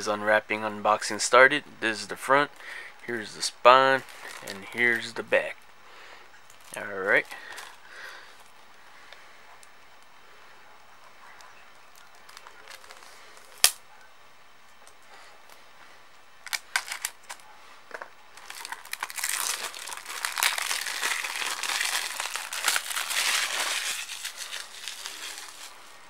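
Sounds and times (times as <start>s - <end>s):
plastic shrink-wrap crinkling: 4.0s - 5.2s, 6.5s - 7.8s, 11.9s - 13.8s, 16.4s - 17.4s, 18.4s - 26.0s.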